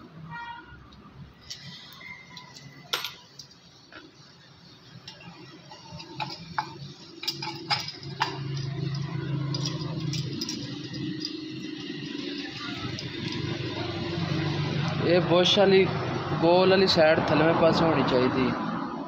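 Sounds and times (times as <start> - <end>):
metal parts clinking: 1.4 - 4.1, 4.9 - 14.6.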